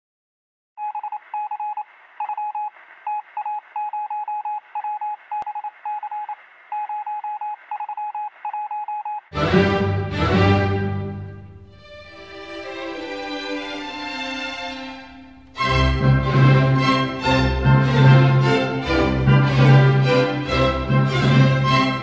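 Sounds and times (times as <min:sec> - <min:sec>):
electronic morse code beeps: 0:00.8 - 0:09.3
loud music: 0:09.4 - 0:22.0.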